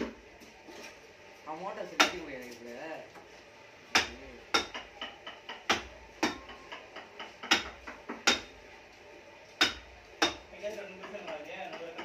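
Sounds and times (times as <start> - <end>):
mallet knocking on chisel: 3.9 - 8.5, 9.6 - 12.0.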